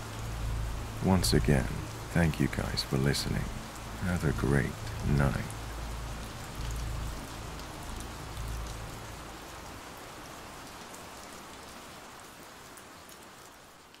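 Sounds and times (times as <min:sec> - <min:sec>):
low steady hum: 0:00.0 - 0:09.9
steady rainfall: 0:00.0 - 0:14.0.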